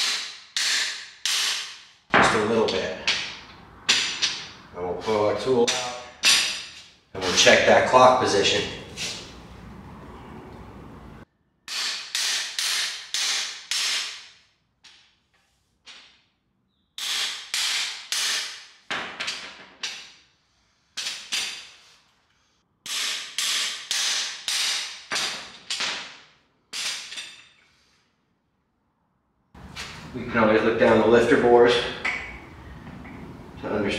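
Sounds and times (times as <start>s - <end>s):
hammer striking metal bar: 0.0s - 4.5s, 5.6s - 6.8s.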